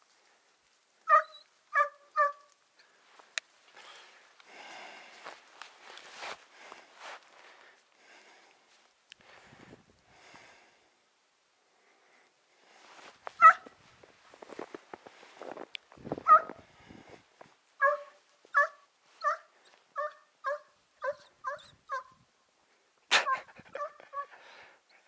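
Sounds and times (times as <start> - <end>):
hound yelping barks: 1.0 - 2.5, 13.4 - 13.7, 16.2 - 16.6, 17.8 - 22.2, 23.2 - 24.4.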